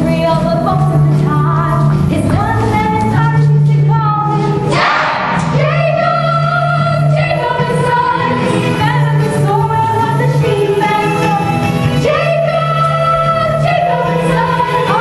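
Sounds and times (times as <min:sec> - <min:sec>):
band accompaniment: 0:04.4 - 0:09.0
chorus of women singing: 0:04.6 - 0:11.1, 0:12.0 - 0:15.0
cymbal crash: 0:04.7 - 0:05.6.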